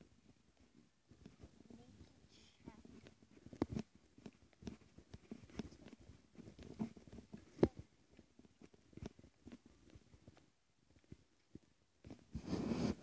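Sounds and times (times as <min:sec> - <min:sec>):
microphone handling rubbing: 0:00.6 - 0:10.4, 0:12.0 - 0:13.0.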